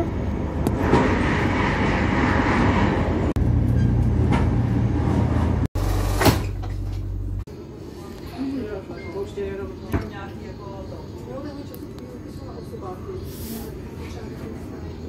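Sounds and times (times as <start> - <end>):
train passing alongside: 0.0 - 5.7, 7.5 - 15.0
train wheels rumbling on track: 0.0 - 5.7.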